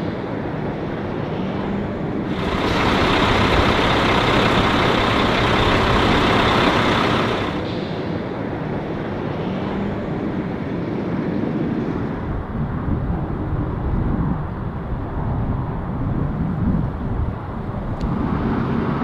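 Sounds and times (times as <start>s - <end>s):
vehicle engine rumble: 2.0s - 8.3s.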